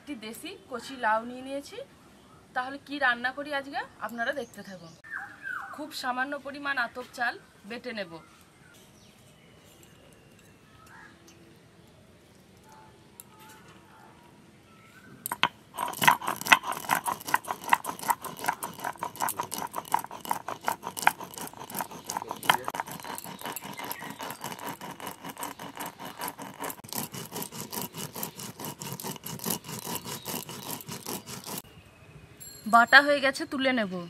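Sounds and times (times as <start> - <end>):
stone grinding on stone: 15.2 - 31.6.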